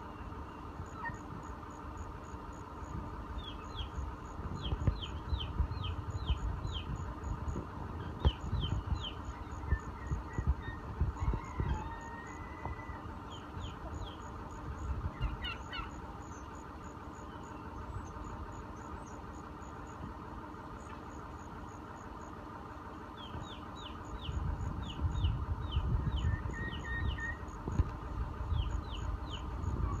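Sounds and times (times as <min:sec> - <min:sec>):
chickens chirping: 0:00.0 - 0:01.6, 0:03.3 - 0:19.3, 0:23.2 - 0:30.0
low rumble: 0:00.0 - 0:16.6, 0:23.2 - 0:30.0.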